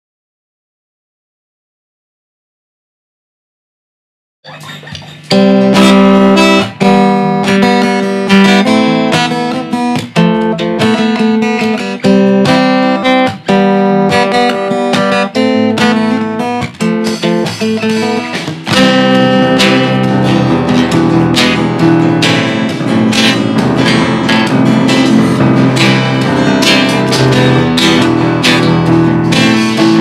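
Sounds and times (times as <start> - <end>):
acoustic guitars strumming chords: 4.5 - 30.0.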